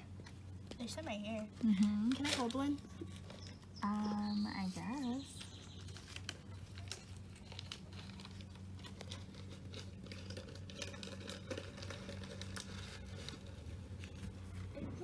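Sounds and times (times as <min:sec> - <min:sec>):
faint low hum: 0:00.0 - 0:15.0
plastic container crinkling: 0:05.2 - 0:15.0.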